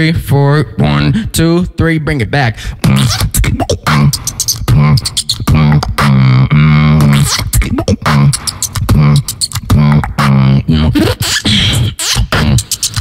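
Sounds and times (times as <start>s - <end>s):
beatboxing kick and snare: 2.6s - 13.0s
hummed bass line: 2.8s - 13.0s.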